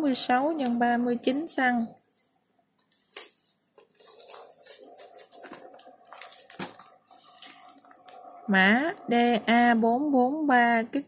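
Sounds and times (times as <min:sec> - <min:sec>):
plastic packets rustling and crinkling: 0:03.8 - 0:08.2.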